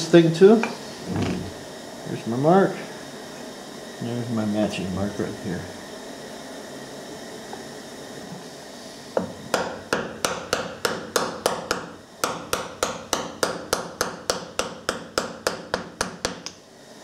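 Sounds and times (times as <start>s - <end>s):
small hammer tapping on metal: 9.2s - 16.6s.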